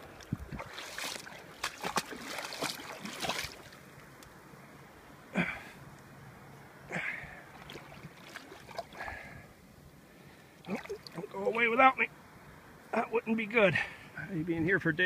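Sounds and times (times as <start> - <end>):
small splashes: 0.0 - 3.9, 6.9 - 9.4, 10.5 - 11.7
paddle-stroke splashes: 0.0 - 4.0, 6.9 - 9.5, 10.4 - 11.9.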